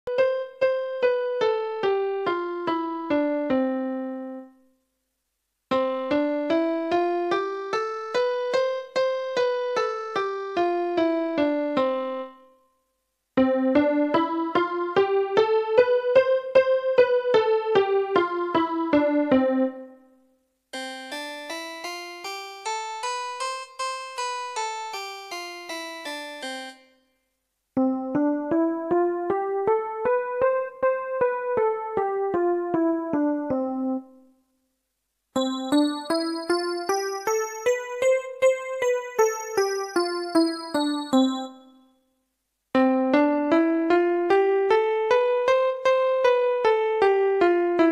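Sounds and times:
keyboard playing scales: 0:05.7 - 0:12.4, 0:13.4 - 0:19.9, 0:20.7 - 0:26.8, 0:27.8 - 0:34.2, 0:35.4 - 0:41.7, 0:42.8 - 0:47.9.

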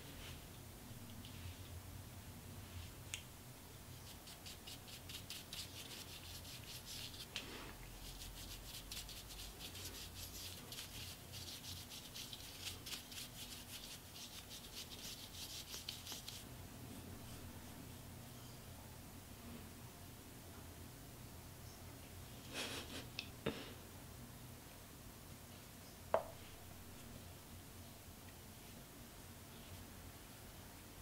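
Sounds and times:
makeup brush strokes: 0:02.5 - 0:03.0, 0:03.9 - 0:16.5.

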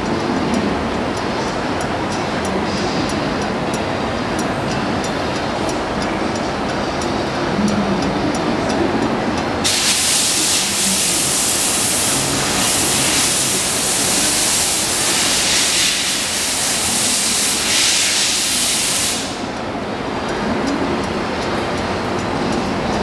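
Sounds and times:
rushing air hiss: 0:09.6 - 0:19.8.

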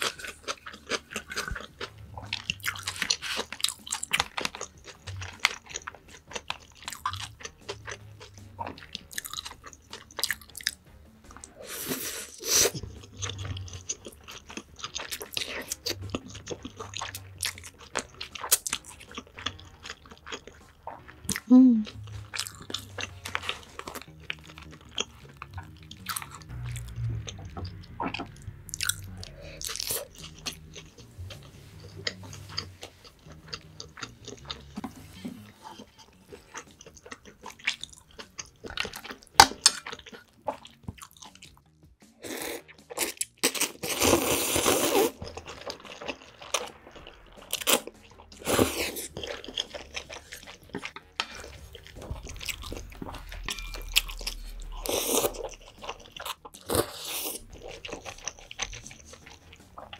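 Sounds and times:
chewing and mouth smacks: 0:00.0 - 0:11.6, 0:12.7 - 0:41.8, 0:44.8 - 0:59.9
slurping noodles: 0:42.2 - 0:59.9.

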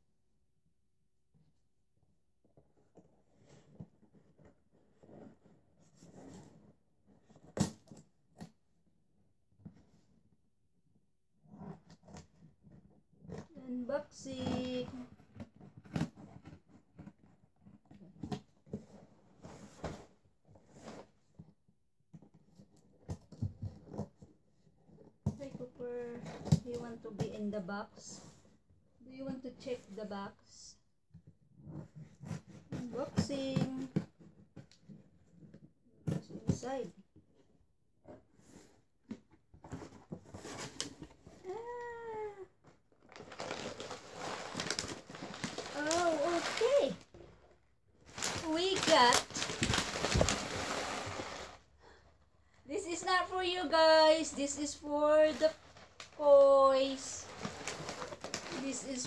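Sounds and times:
plastic packaging crinkling: 0:43.0 - 0:47.0, 0:48.0 - 0:51.6, 0:55.2 - 0:59.0
cardboard flaps scraping: 0:48.0 - 0:51.6.

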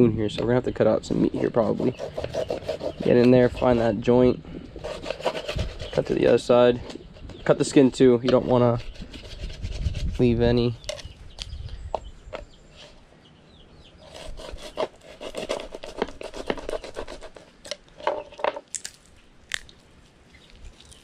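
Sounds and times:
knife cutting skin and joints: 0:20.4 - 0:21.0.

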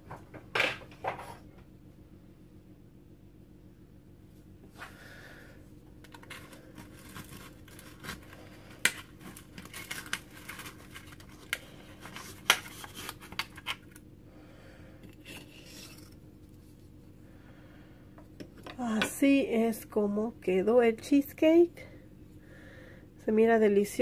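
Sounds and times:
knife scraping through crust and foil: 0:06.1 - 0:13.9, 0:15.2 - 0:16.2
foil crinkling: 0:06.1 - 0:14.0.

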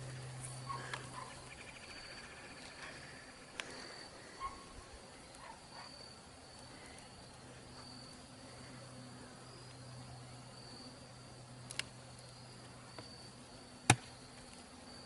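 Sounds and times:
high insect chirp: 0:00.0 - 0:15.0
knocks of wooden hive parts: 0:13.8 - 0:14.2.

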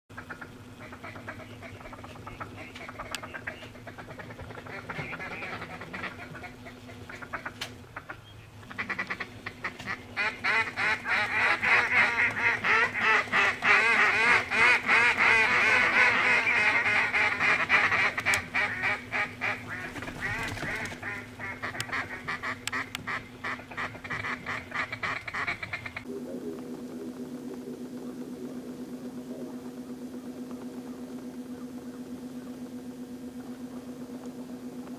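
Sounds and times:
geese honking: 0:00.1 - 0:26.1
ducks quacking: 0:00.1 - 0:32.3.

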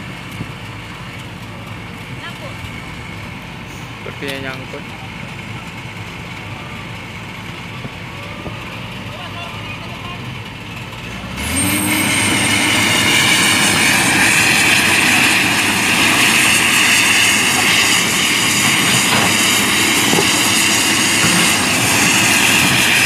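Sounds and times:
excavator diesel engine revving: 0:00.0 - 0:23.0
high whine: 0:11.0 - 0:23.0.

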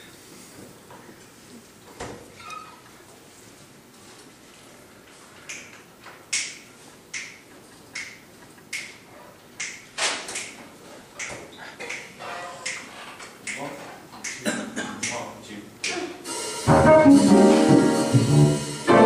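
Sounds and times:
finger snapping: 0:06.3 - 0:09.0, 0:09.6 - 0:09.8.

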